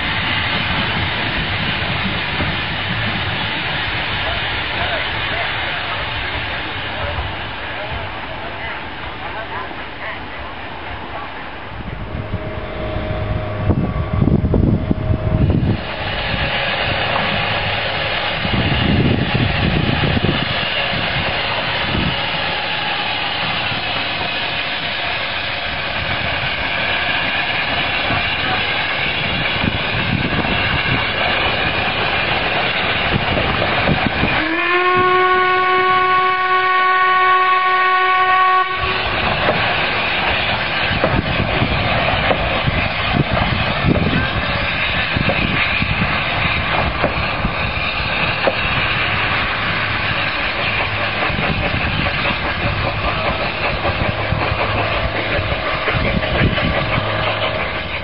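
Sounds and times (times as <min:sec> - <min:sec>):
steam train running: 0:00.0 - 0:58.0
steam whistle: 0:34.3 - 0:39.1.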